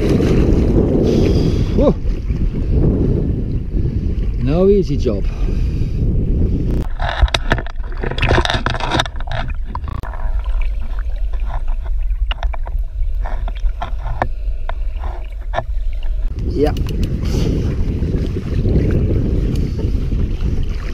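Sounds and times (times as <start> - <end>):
water splashing and sloshing: 0.0 - 20.9
muffled underwater rumble: 5.3 - 20.9
small underwater clicks and knocks: 6.7 - 17.2.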